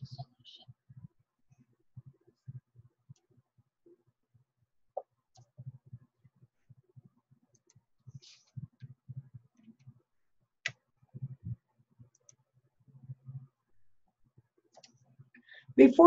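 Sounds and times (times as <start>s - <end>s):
computer mouse clicking: 12.1s - 12.4s, 14.7s - 15.0s.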